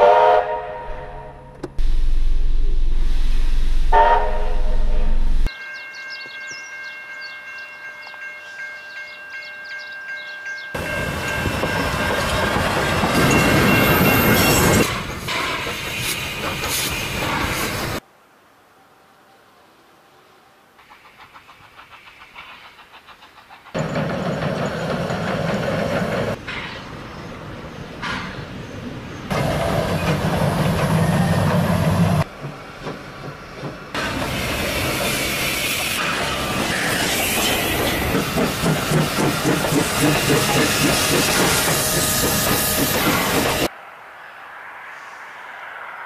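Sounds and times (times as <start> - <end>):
steam hissing: 14.6 - 18.0, 33.2 - 43.7
wheels clacking over rail joints: 20.8 - 26.9, 29.3 - 43.7
steam locomotive exhaust chuffing: 29.3 - 43.7.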